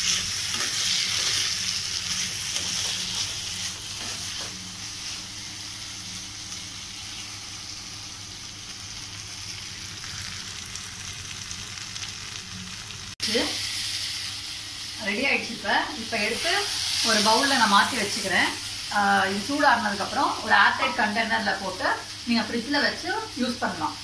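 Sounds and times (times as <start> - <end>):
metal spatula stirring and scraping: 0.0 - 5.2
food sizzling in oil: 0.0 - 24.0.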